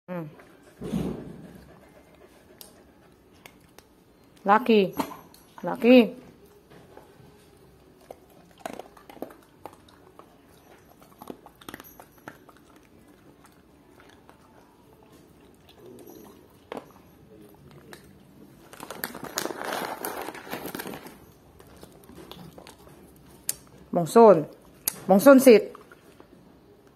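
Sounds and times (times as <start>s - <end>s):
pets chewing crunchy treats: 5.2s - 23.9s, 24.5s - 26.9s.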